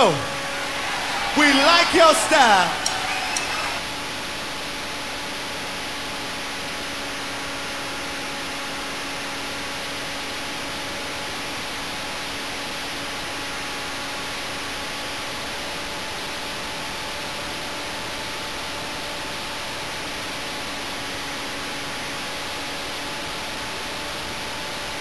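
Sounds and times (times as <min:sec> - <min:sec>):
electric motor and propeller whine: 0:00.0 - 0:01.4.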